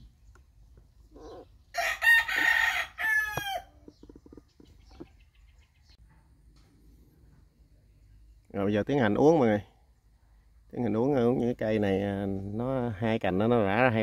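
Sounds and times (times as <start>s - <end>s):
rooster crowing: 1.7s - 3.8s.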